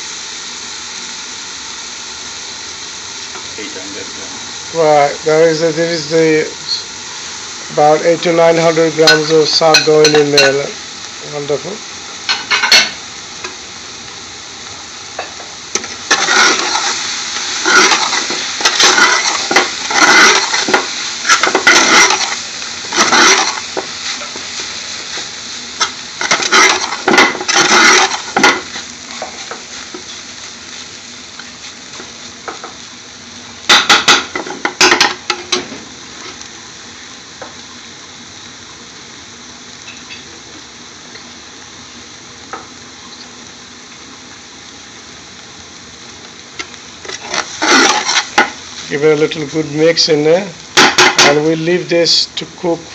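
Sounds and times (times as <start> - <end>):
spinach sizzling in hot oil: 0.0 - 52.9
stirring and scraping in pan: 15.2 - 32.8, 46.6 - 48.9.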